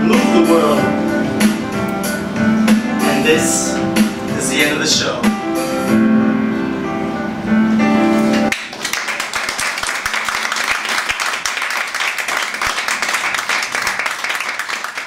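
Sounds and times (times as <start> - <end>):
music: 0.0 - 9.2
audience applause: 8.5 - 15.0.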